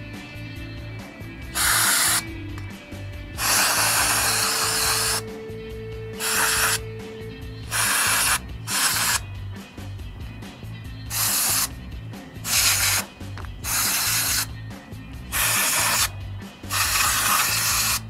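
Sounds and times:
aerosol spray can hissing: 1.5s - 2.3s, 3.4s - 5.3s, 6.2s - 6.8s, 7.6s - 9.2s, 11.1s - 11.7s, 12.4s - 14.5s, 15.3s - 18.0s.

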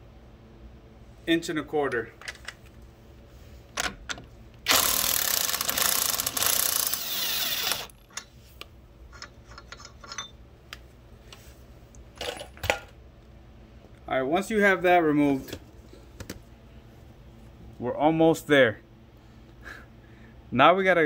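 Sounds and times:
impact wrench rattling: 4.7s - 8.3s.

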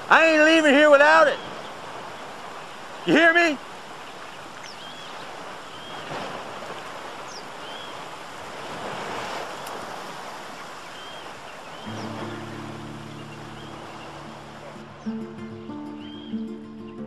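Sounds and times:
creek water rushing: 0.0s - 17.0s
high chirps: 11.0s - 17.0s
low music chord: 11.9s - 16.8s.

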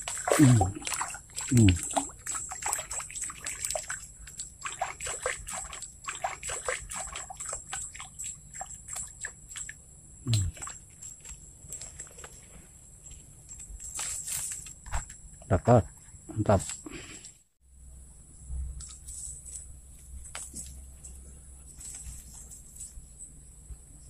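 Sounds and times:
small irregular splashes: 0.0s - 12.3s
trickling water: 0.0s - 12.4s.

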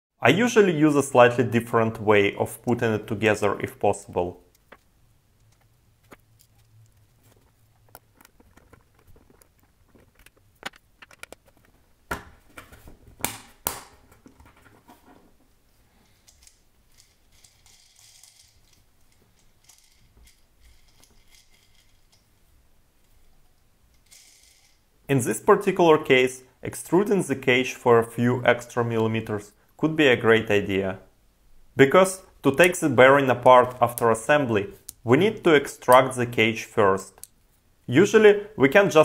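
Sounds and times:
steel balls and plastic clicking: 16.0s - 22.3s, 23.0s - 24.9s.

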